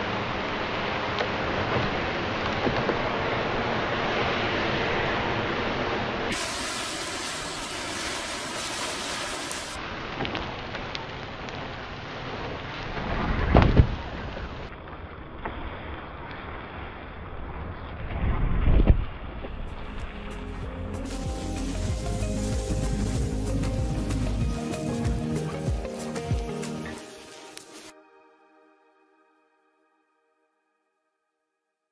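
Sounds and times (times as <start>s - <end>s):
fire rumble: 0.0s - 27.9s
flames rushing: 0.3s - 20.3s, 21.0s - 27.9s
fire crackling and popping: 6.3s - 18.2s, 19.0s - 27.9s.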